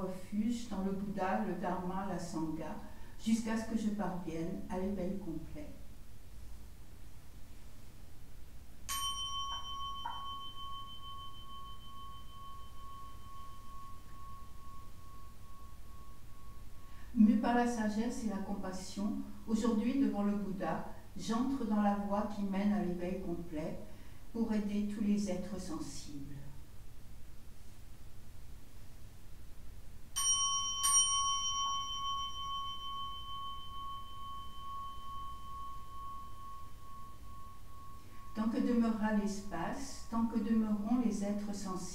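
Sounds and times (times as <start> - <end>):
faint soft sounds: 0.0 - 41.9
bowl bell ringing: 8.9 - 18.6, 30.1 - 41.6.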